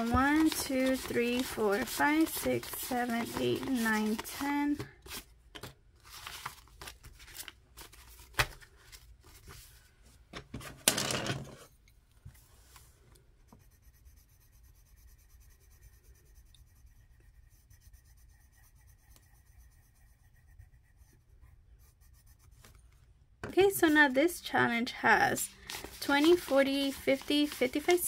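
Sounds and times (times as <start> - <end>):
pencil scratching on paper: 0.0 - 5.2, 13.5 - 22.8, 23.6 - 28.0
paper and plastic pouch rustling: 0.0 - 9.8, 25.4 - 28.0.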